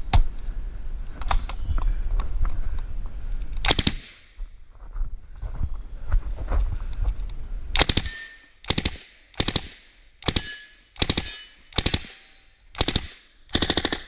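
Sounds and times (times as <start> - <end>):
submachine gun bursts: 7.8 - 14.0.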